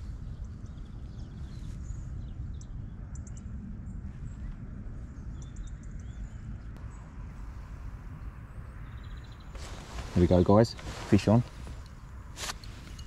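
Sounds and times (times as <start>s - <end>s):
wind rumbling on microphone: 0.0s - 13.0s
small birds chirping: 8.1s - 13.0s.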